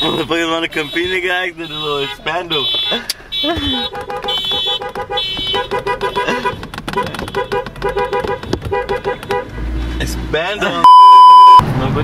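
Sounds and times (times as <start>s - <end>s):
car horn short blasts: 0.8s - 6.6s.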